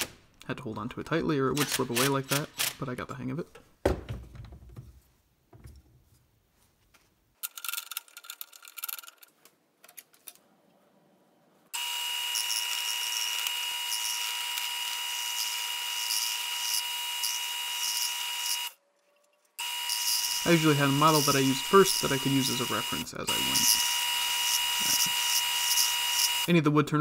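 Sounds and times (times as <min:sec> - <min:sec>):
turning tool cutting wood: 0:11.8 - 0:18.8, 0:19.6 - 0:26.5
wood lathe motor whine: 0:11.8 - 0:18.8, 0:19.6 - 0:26.5.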